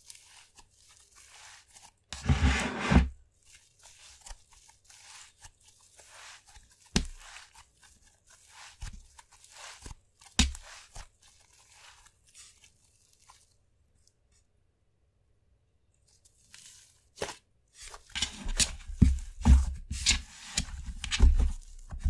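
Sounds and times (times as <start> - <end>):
slime crackling and tearing: 3.4 - 13.6.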